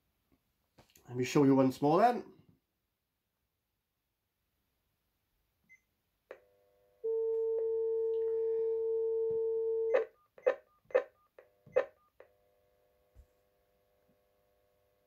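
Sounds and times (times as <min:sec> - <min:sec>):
phone dial tone: 0:06.3 - 0:12.3
keypad clicks with beeps: 0:09.9 - 0:12.2.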